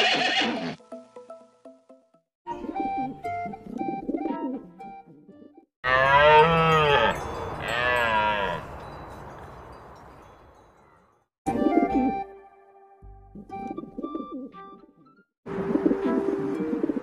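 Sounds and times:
background music: 0.4 - 5.7, 11.5 - 17.0.

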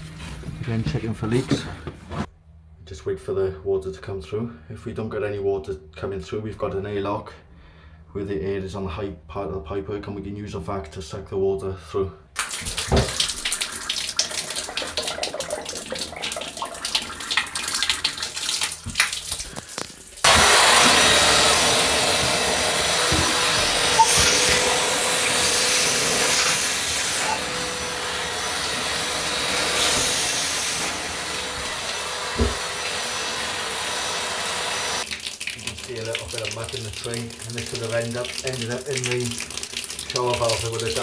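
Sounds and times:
wet vac running: 12.4 - 41.0.

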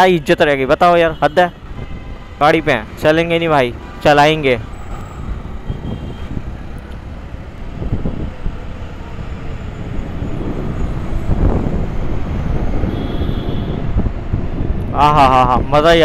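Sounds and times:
road and traffic rumble: 0.0 - 16.0
wind rushing over microphone: 1.5 - 16.0.

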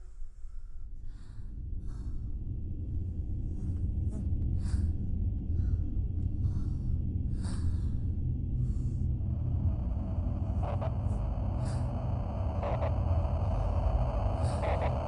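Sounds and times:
low rumbling drone: 0.4 - 15.0.

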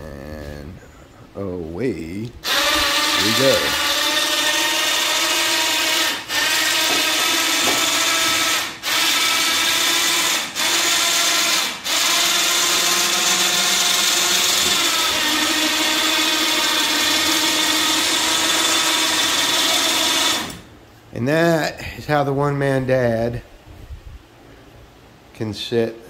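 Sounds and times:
electric winch motor whine: 2.4 - 20.7.

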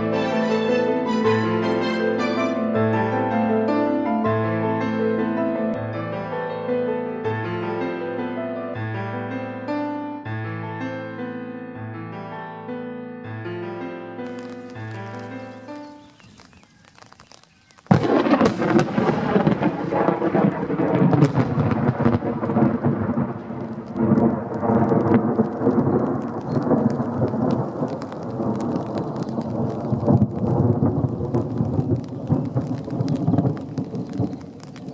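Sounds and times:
thunder crack: 0.0 - 2.6, 17.8 - 34.9
thunder rumbling: 0.0 - 3.0, 14.3 - 34.9.

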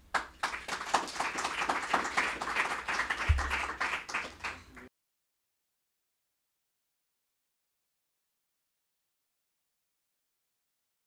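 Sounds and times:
audience applauding: 0.0 - 4.9
low thump: 3.3 - 3.6.

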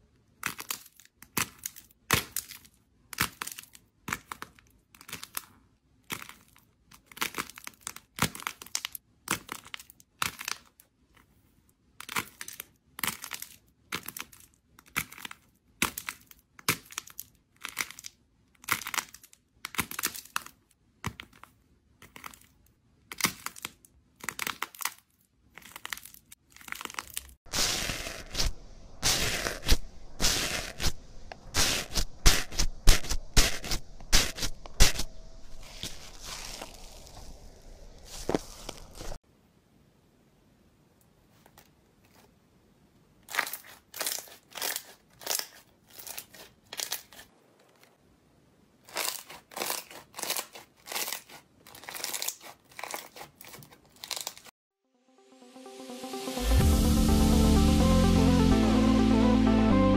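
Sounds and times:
dense crackling of foam slime: 25.5 - 39.2.

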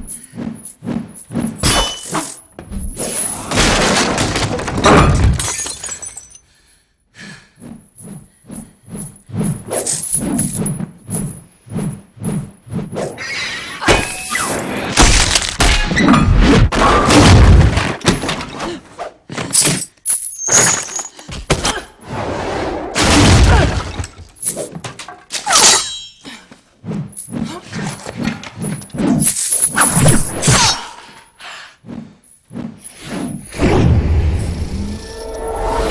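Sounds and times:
crashes and smashing: 3.4 - 6.4, 14.8 - 18.5.

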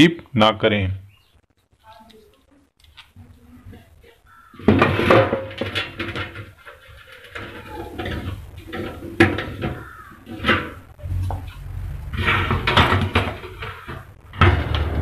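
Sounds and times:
metal cabinet clattering and scraping: 4.6 - 10.9, 12.1 - 15.0.

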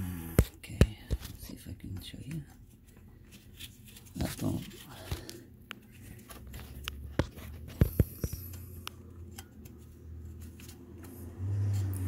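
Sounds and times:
low steady hum: 0.0 - 12.0
clicks and taps on metal engine parts: 6.8 - 11.2.

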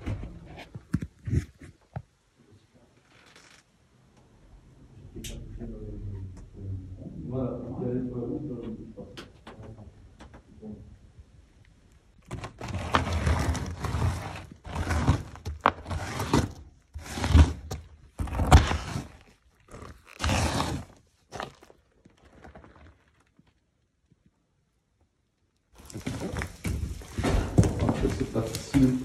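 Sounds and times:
boot scraping on gravel floor: 12.4 - 23.2, 25.8 - 28.8.

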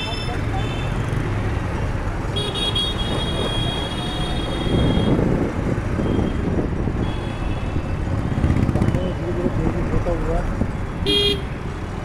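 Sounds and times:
motorcycles and scooters running: 0.0 - 12.0
vehicle horn: 11.0 - 11.5.

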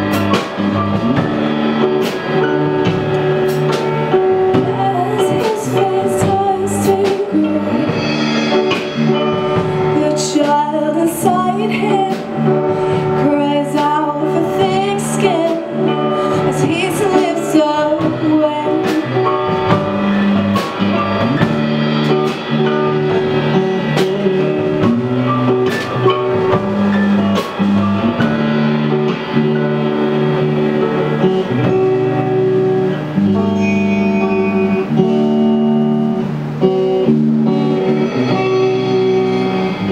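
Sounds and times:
live rock band playing: 0.0 - 39.9
person singing: 4.5 - 8.2, 9.7 - 19.5
cymbal hits: 33.4 - 35.6.

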